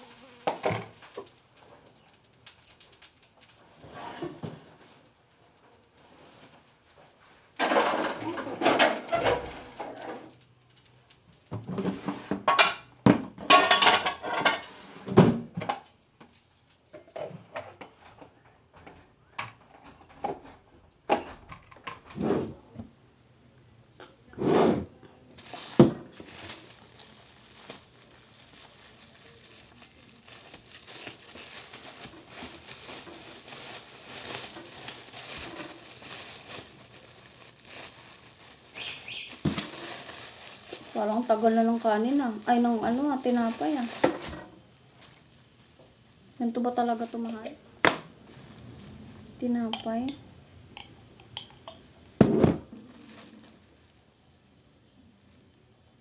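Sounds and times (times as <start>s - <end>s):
ceramic plates clattering: 12.2s - 14.8s.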